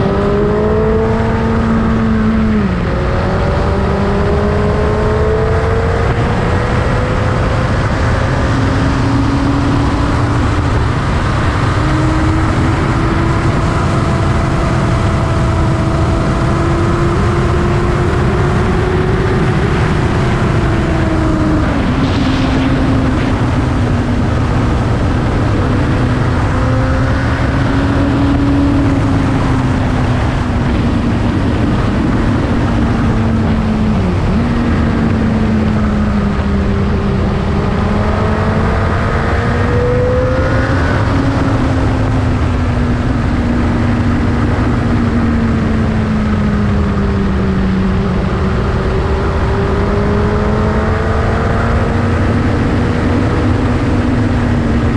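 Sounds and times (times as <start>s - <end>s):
steady low rush: 18.5s - 50.3s.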